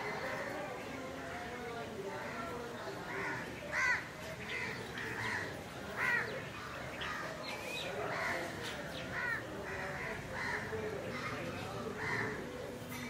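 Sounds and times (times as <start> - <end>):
crows cawing: 3.1 - 6.3, 9.2 - 13.0.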